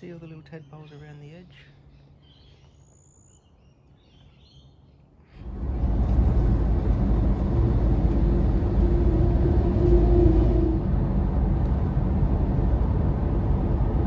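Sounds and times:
faint bird chirps: 0.6 - 5.1
car road and engine noise: 5.4 - 14.0.

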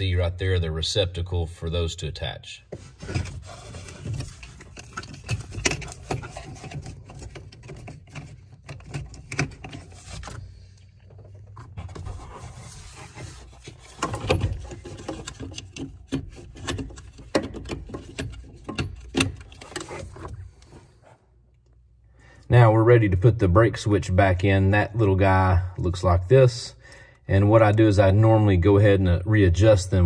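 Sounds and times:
plastic connectors clicking and scraping: 3.1 - 20.4.

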